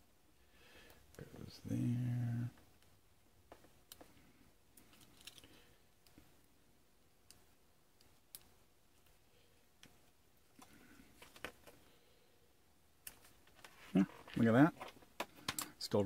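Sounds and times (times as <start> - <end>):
small clicks and taps: 3.5 - 4.2.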